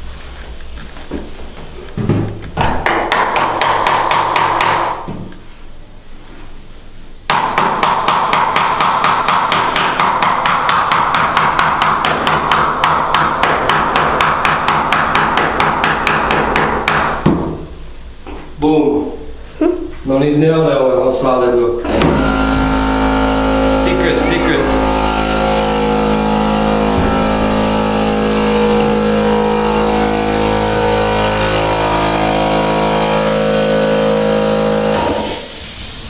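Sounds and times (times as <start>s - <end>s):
hammer striking nails into wood: 2.6s - 5.1s, 7.3s - 17.5s.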